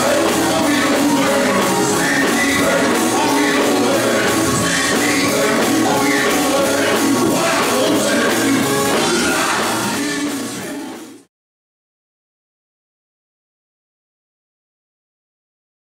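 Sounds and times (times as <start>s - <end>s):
man singing over a band: 0.0s - 11.1s.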